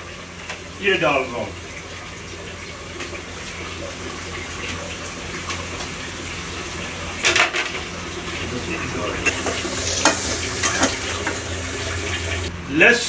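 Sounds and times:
meat sizzling in a pot: 2.8s - 12.5s.

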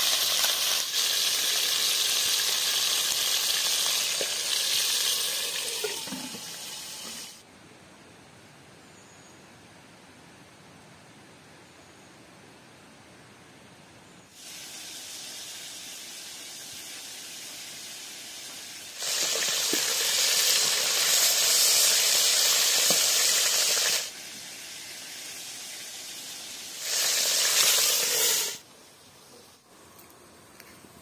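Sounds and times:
chicken frying in hot oil: 0.0s - 7.4s, 14.3s - 28.6s.

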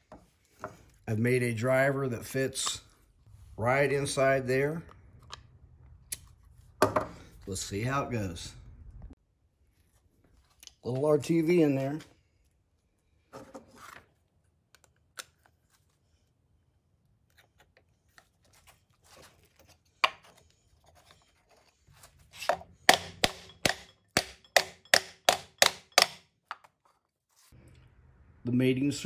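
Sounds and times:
hammer striking wood block: 22.9s - 26.3s.

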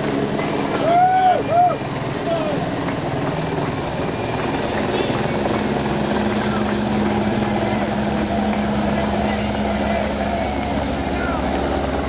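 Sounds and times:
engine drone: 0.0s - 12.0s
spectators' voices: 6.2s - 12.0s.

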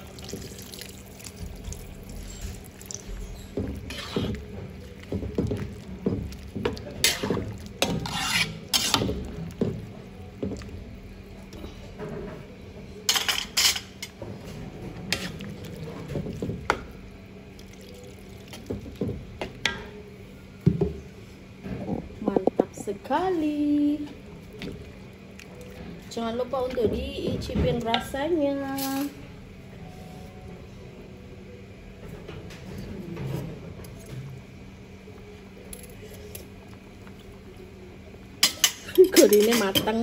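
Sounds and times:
water pouring into wok: 0.0s - 3.0s
ladle scraping and clinking wok: 7.0s - 9.2s.

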